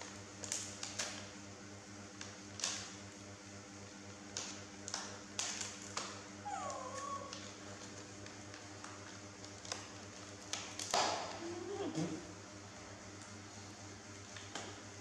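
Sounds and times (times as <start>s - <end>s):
baby monkey high call: 6.4s - 7.4s.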